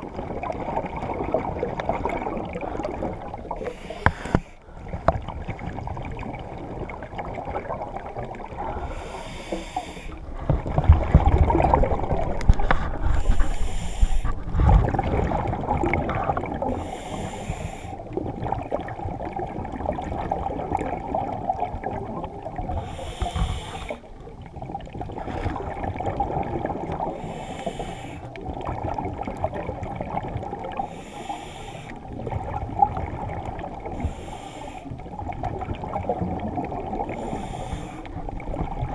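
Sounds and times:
low water rumble: 0.0 - 38.9
diver breathing underwater: 2.4 - 5.1, 8.6 - 10.9, 11.9 - 15.3, 16.6 - 18.2, 22.6 - 24.1, 27.0 - 28.4, 30.7 - 32.3, 33.8 - 35.1, 36.9 - 38.7.

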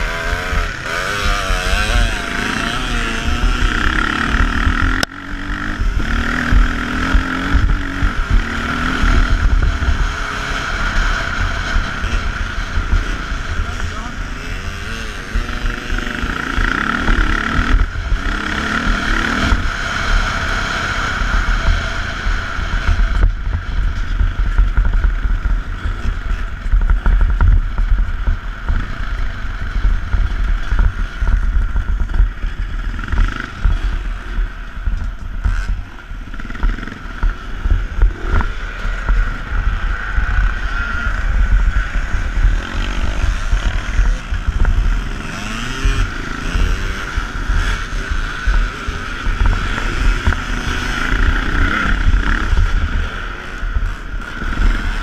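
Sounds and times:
motocross bike engine revving: 0.0 - 55.0
wind buffeting microphone: 21.4 - 55.0.

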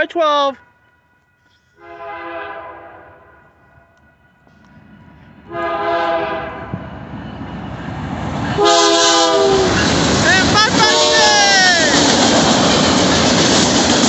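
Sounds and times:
locomotive air horn blasts: 1.4 - 3.5, 5.5 - 6.8, 8.6 - 9.8, 10.4 - 11.6
train rumble: 3.2 - 14.0.

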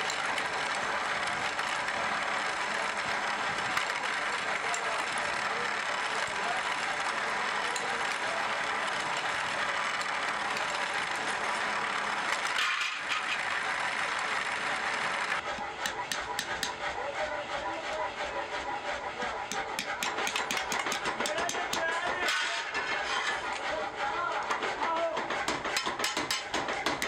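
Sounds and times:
drill press boring wood: 0.0 - 27.0
hammer tapping metal pins: 19.5 - 22.6, 25.1 - 27.0.

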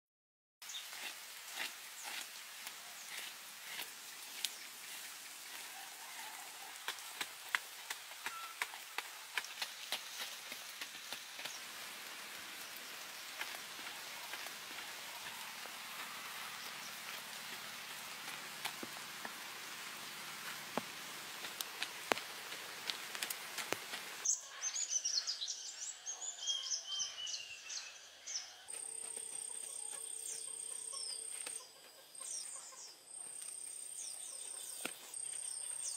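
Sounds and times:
outdoor hiss: 0.6 - 25.5
birds chirping: 1.9 - 35.9
sharp taps and ticks: 20.8 - 24.1.

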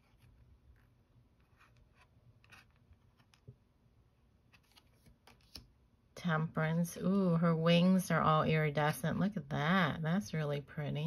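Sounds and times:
tarot card ticks and rubs: 4.5 - 5.7.

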